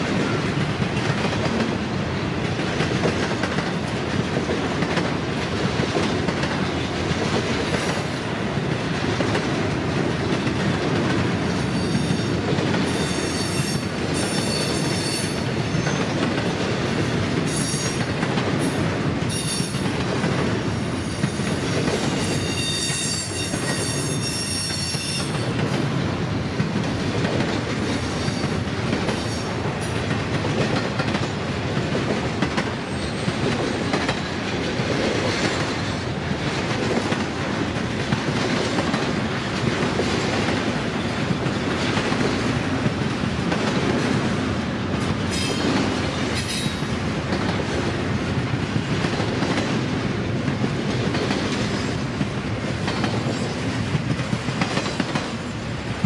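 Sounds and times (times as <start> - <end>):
high-pitched wheel squeal: 22.2 - 25.4.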